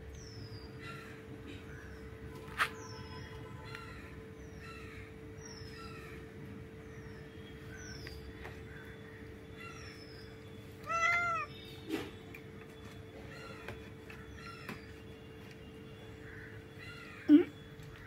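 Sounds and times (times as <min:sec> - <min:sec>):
cat meowing: 0:10.8 - 0:11.6.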